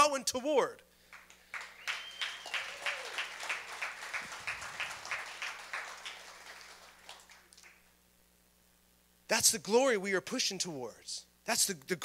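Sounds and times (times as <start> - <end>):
crowd applauding: 1.1 - 7.9.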